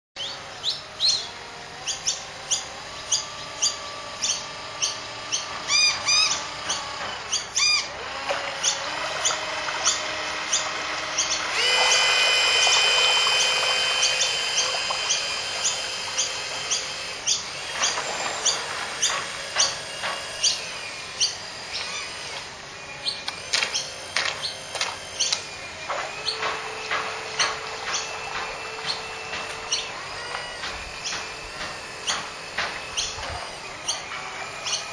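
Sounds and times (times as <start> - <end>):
bird chirps: 0.2 - 7.9, 33.8 - 34.9
electric motor whine: 0.2 - 34.9.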